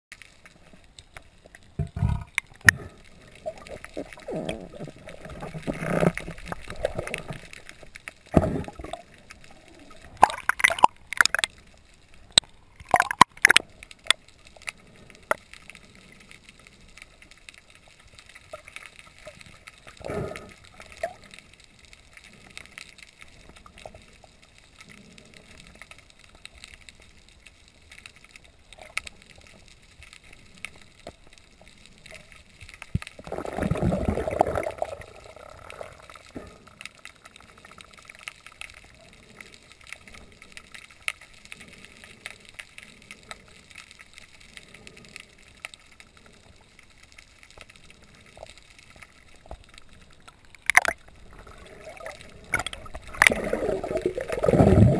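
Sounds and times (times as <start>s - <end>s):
underwater clicks and crackles: 0.1s - 54.9s
bubbling gurgle: 1.8s - 7.7s, 8.3s - 11.5s, 12.8s - 13.7s, 33.2s - 36.3s, 50.6s - 54.9s
underwater hiss: 20.0s - 21.4s.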